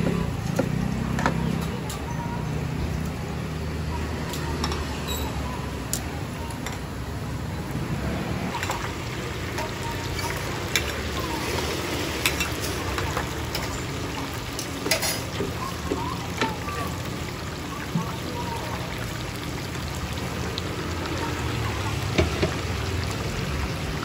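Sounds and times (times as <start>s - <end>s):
oil sizzling and bubbling: 0.0s - 24.0s
metal utensils clinking on wok: 12.2s - 13.9s, 14.5s - 15.5s.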